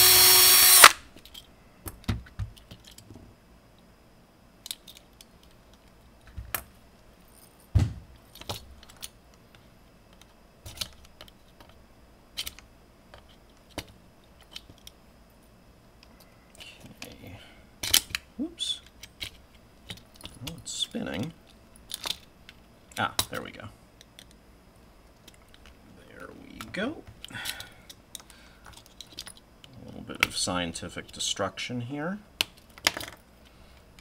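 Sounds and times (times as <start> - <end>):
cordless drill drilling: 0.0 - 1.0
small metal parts clicking: 0.8 - 1.5, 4.6 - 6.6, 8.3 - 9.2, 21.8 - 23.4, 26.5 - 29.8.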